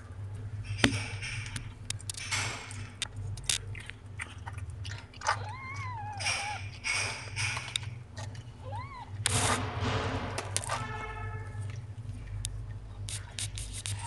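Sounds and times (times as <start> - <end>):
cat licking and chewing: 0.1 - 9.7, 11.5 - 14.0
kitten mewing: 5.2 - 6.8, 8.6 - 9.5.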